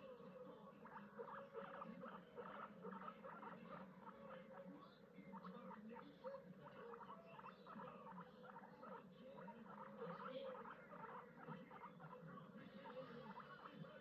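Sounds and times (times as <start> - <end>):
guinea pigs chewing hay: 0.0 - 14.0.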